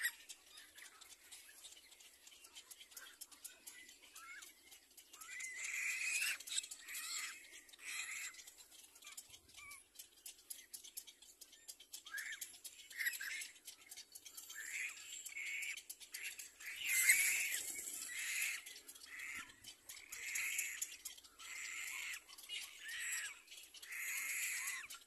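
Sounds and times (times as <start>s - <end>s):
nestlings begging calls: 0.0s - 10.1s, 11.1s - 25.0s.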